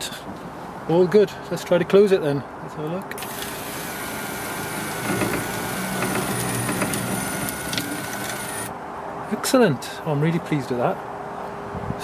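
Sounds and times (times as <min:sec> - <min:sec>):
sunroof motor whine: 0:03.2 - 0:08.7.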